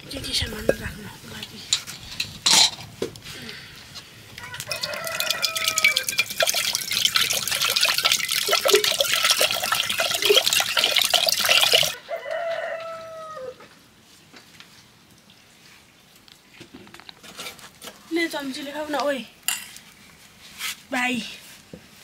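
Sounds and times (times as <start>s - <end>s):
water hissing on hot metal pot: 4.2s - 12.0s
rooster crowing: 4.4s - 6.2s, 11.9s - 13.7s.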